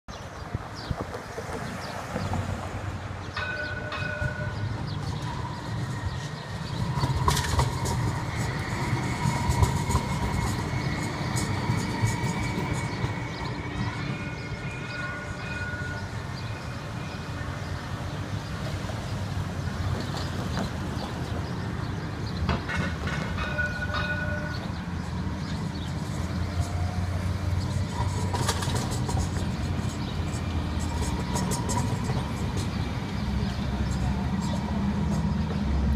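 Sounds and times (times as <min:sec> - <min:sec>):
streetcar rumbling past: 0:00.1 - 0:35.9
wheels clicking and clacking: 0:03.4 - 0:16.2, 0:22.4 - 0:35.6.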